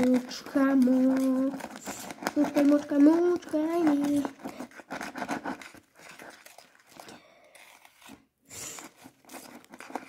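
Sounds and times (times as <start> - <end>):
foam squishing and crackling: 0.0 - 10.0.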